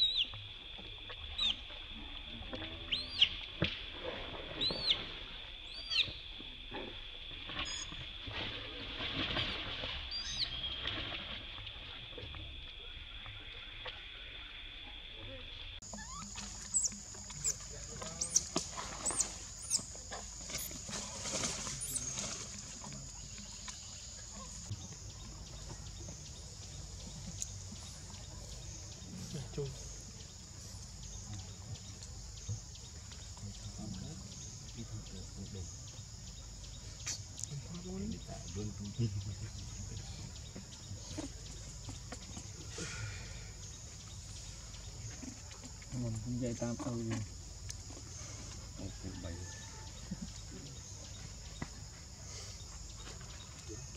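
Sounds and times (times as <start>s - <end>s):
infant monkey squealing: 15.8s - 17.6s.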